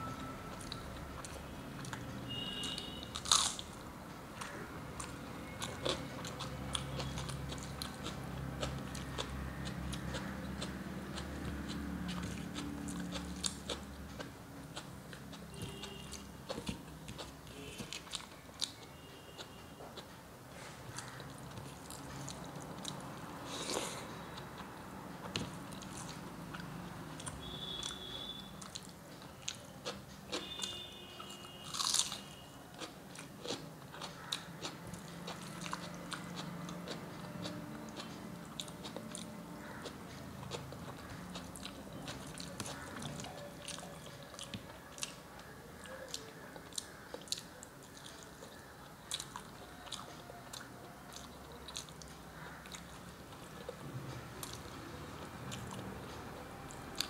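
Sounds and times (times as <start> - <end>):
person chewing food: 0.1 - 57.0
crunchy bites: 2.3 - 3.7, 31.4 - 43.3.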